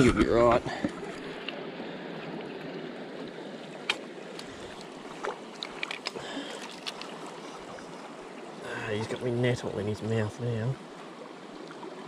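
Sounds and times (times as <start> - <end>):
river water rushing: 0.9 - 10.0.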